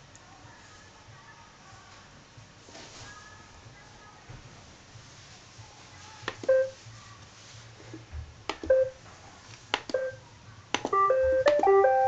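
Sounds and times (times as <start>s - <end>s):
button clicks: 10.8s - 11.8s.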